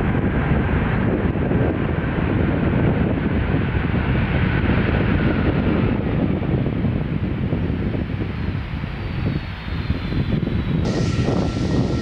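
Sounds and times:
wind buffeting microphone: 0.0 - 12.0
jet engines roaring: 9.7 - 12.0.

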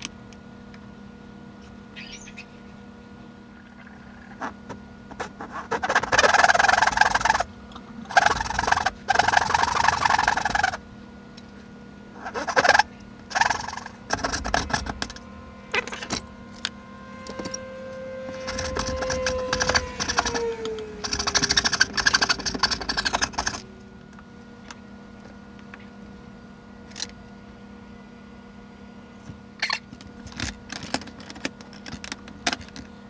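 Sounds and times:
hand saw rasping wood: 5.1 - 7.5, 17.2 - 23.6
held tone sliding down: 13.3 - 24.0.

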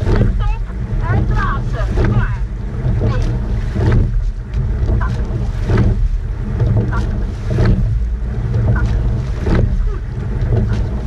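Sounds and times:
oar stroke sounds: 0.0 - 11.0
water rushing along hull: 0.0 - 11.0.

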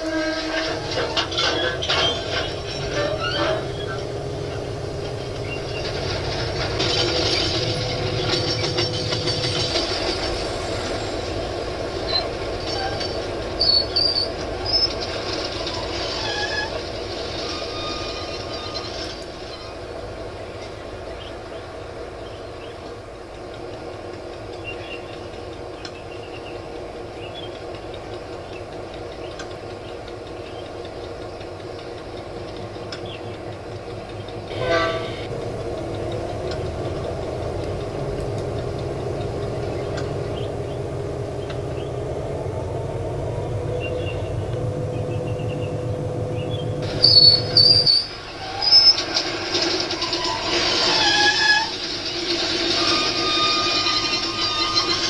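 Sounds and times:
train horn blasts: 0.0 - 1.2, 34.5 - 35.3
diesel locomotive engine: 0.0 - 55.0.

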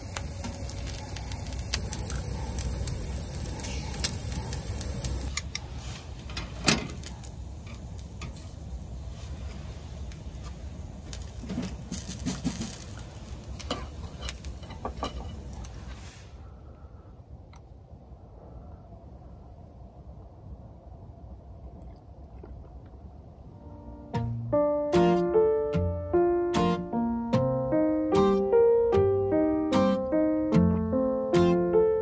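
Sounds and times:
small crackles and clicks: 0.0 - 8.6, 9.4 - 15.9
meat sizzling on a grill: 0.0 - 16.2.

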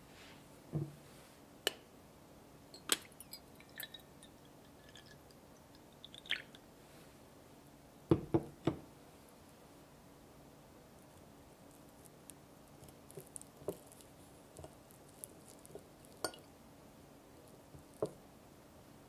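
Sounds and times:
tea trickling and dripping: 2.7 - 6.7, 10.9 - 16.6, 17.3 - 18.2.

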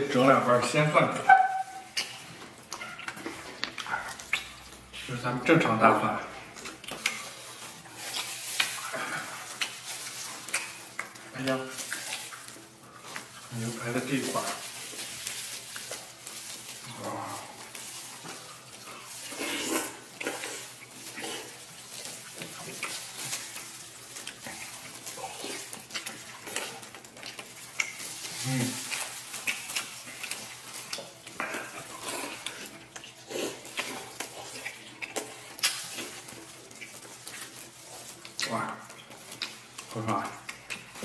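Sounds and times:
people chewing meat: 0.0 - 41.0.

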